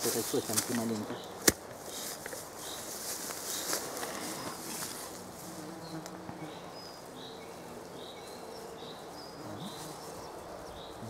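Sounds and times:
flying insect buzzing: 2.6s - 11.0s.

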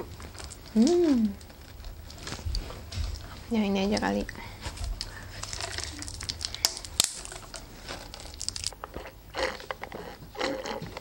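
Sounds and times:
plastic crinkling and tearing: 0.0s - 3.4s, 4.6s - 10.9s.

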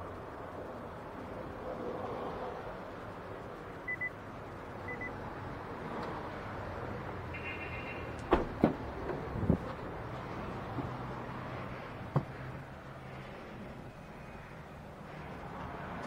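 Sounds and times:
short electronic beeps: 3.9s - 4.2s, 4.9s - 5.1s
car door clicks and knocks: 8.2s - 9.2s.

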